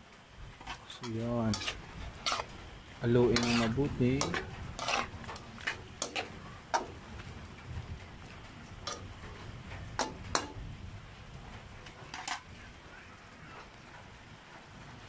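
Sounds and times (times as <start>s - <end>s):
pan sizzling faintly: 0.0s - 14.1s
metal utensil scraping a wok: 0.6s - 10.6s, 11.8s - 12.6s.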